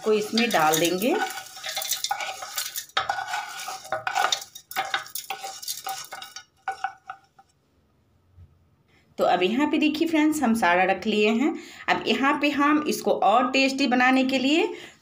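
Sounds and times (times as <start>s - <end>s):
spatula scraping metal wok: 0.0s - 7.4s.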